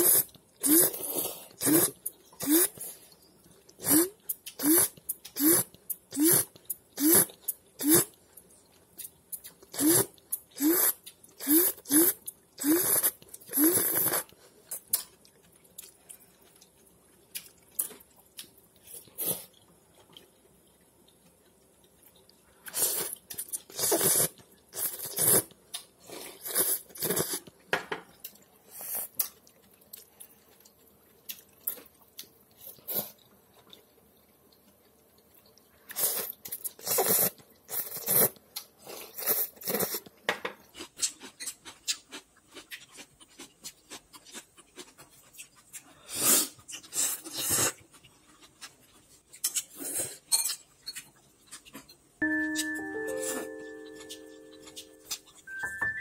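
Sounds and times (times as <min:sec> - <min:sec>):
noodles being slurped: 0:00.0 - 0:03.0, 0:09.7 - 0:15.0, 0:35.8 - 0:40.1, 0:40.8 - 0:50.3.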